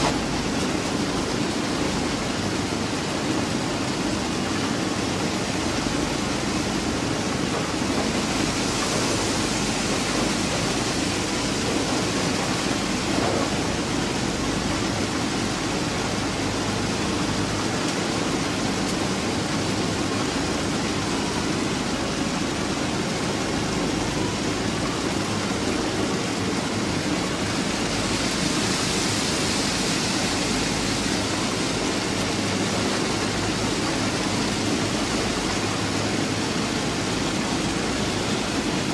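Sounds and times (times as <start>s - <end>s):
conveyors running: 0.0s - 38.9s
gravel pouring: 8.0s - 13.2s.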